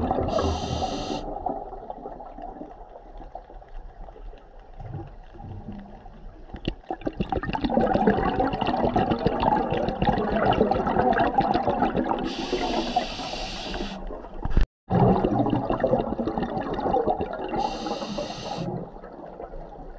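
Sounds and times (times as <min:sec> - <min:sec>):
diver's exhaled bubbles: 0:00.0 - 0:02.9, 0:06.9 - 0:14.0, 0:14.9 - 0:19.9.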